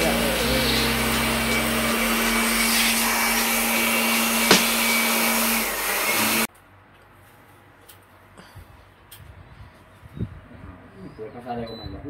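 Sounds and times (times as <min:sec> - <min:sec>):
pressure washer running: 0:00.0 - 0:06.5.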